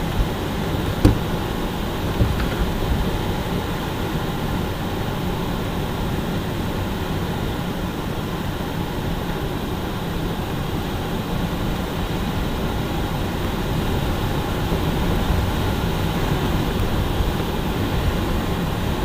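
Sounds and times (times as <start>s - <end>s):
light aircraft cockpit noise: 0.0s - 19.0s
sharp knock: 1.0s - 1.4s.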